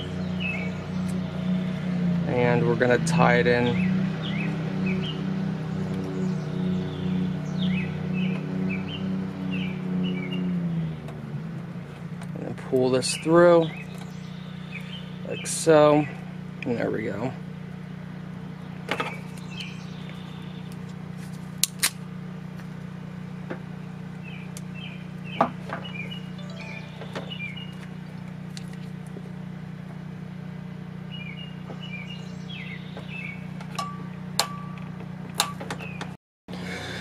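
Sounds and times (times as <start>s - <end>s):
small birds chirping: 0.0s - 2.6s, 3.5s - 17.4s, 18.3s - 21.2s, 23.1s - 29.2s, 31.0s - 34.2s.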